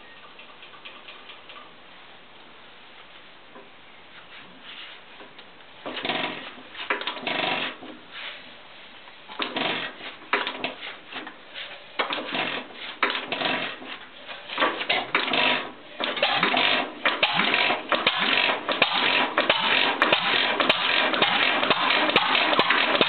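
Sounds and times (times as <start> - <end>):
stationary engine clanking: 14.5 - 23.0.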